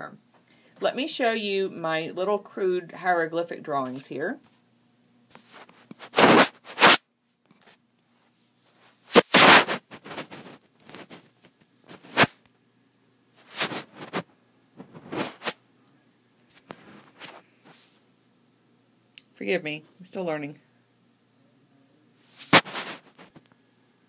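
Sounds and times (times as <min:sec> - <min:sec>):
hands handling recording device: 0:09.2 - 0:12.4, 0:22.4 - 0:23.4.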